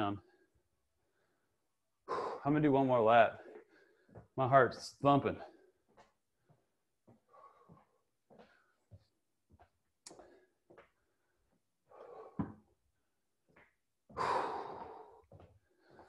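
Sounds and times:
man breathing hard: 1.1s - 2.5s, 7.2s - 8.9s, 10.2s - 12.7s, 14.1s - 16.0s.

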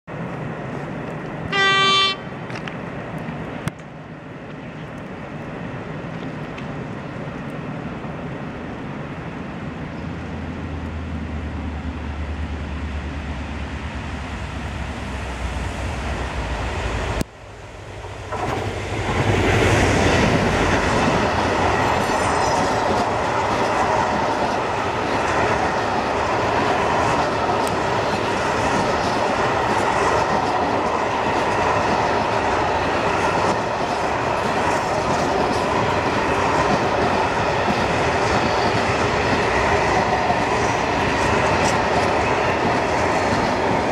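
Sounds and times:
freight train wagons passing: 0.1s - 43.9s
locomotive horn blast: 1.5s - 2.3s.

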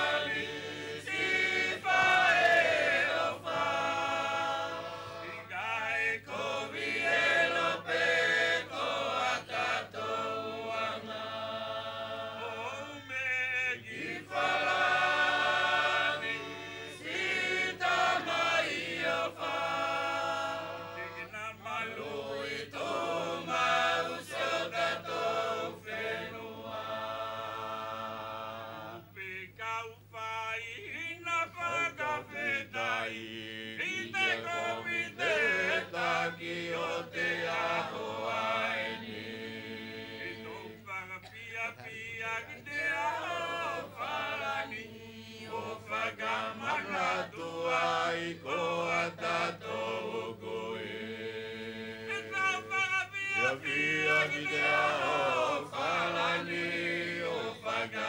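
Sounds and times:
chorus of men and women singing: 0.0s - 58.0s.

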